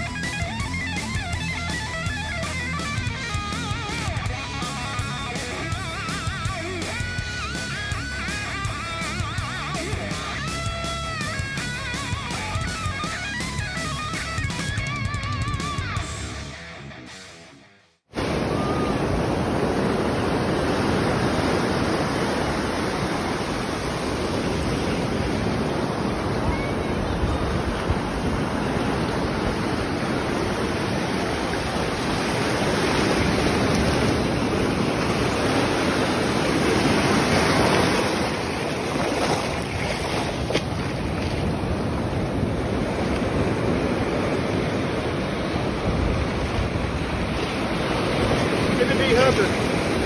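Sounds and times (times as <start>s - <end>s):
surf washing over shallows: 18.1s - 50.0s
wind buffeting microphone: 18.2s - 50.0s.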